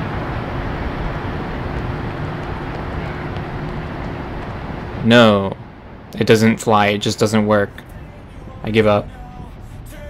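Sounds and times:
distant traffic rumble: 0:00.0 - 0:10.0
faint steady hum: 0:00.0 - 0:10.0.

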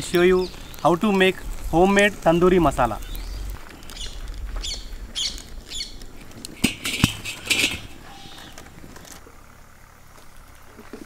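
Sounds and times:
wok scraping on stones: 0:00.0 - 0:09.2
wok knocking on stones: 0:06.5 - 0:08.7.

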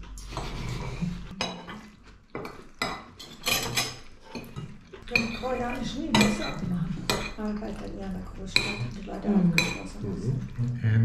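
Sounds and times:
cutlery clinking on plates: 0:00.2 - 0:07.4, 0:08.5 - 0:10.0.

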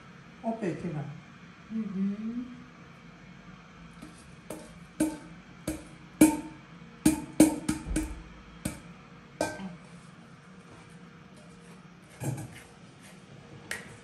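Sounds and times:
metal pot knocking on bowl: 0:04.5 - 0:08.8, 0:09.4 - 0:09.7.

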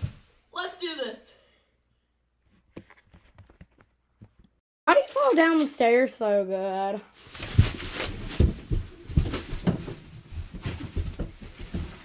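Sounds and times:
bubble wrap crackling and popping: 0:07.2 - 0:11.2.

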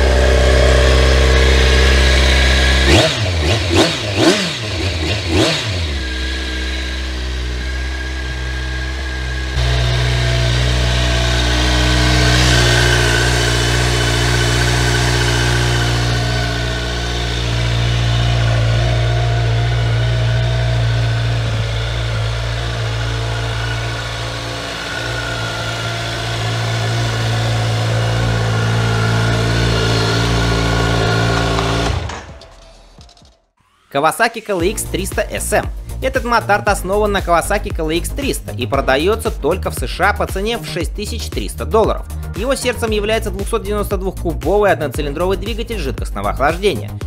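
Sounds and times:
motorcycle engine idling: 0:00.0 - 0:32.4, 0:34.6 - 0:40.6.

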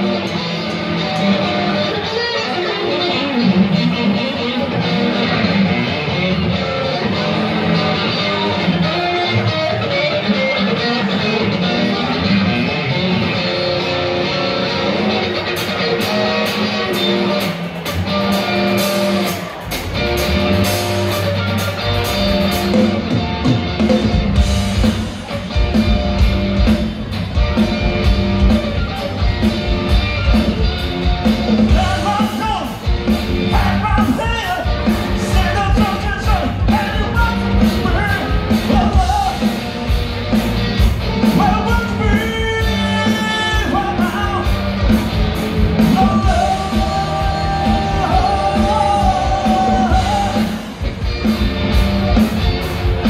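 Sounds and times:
bass guitar: 0:00.0 - 0:53.0
drums: 0:00.0 - 0:53.0
electric guitars: 0:00.0 - 0:53.0
lead singer singing: 0:41.3 - 0:44.6, 0:45.8 - 0:50.8.

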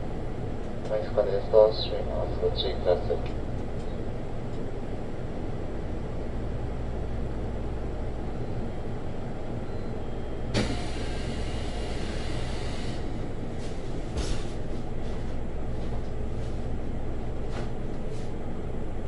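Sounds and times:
train interior hum: 0:00.0 - 0:19.0
hiss: 0:10.6 - 0:13.0.

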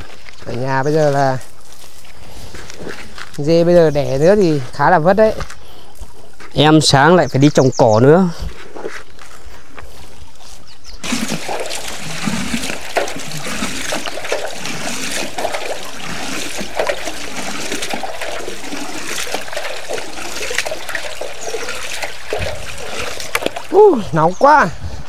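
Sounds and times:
water running and splashing: 0:09.9 - 0:24.7
water gurgling: 0:11.0 - 0:24.7.

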